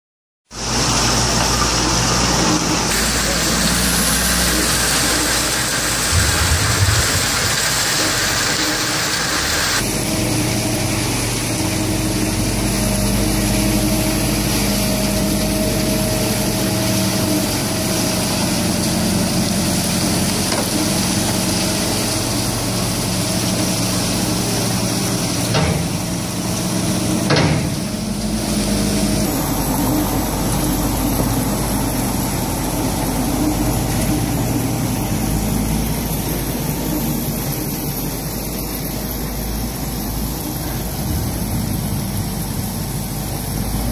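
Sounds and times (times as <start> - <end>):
wood chips tumbling in drum: 0.6 - 30.4
wood chips pouring off conveyor: 0.6 - 43.9.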